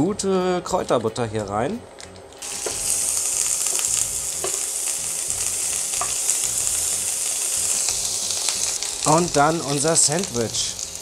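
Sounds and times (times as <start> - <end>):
butter sizzling in a frying pan: 2.4 - 11.0.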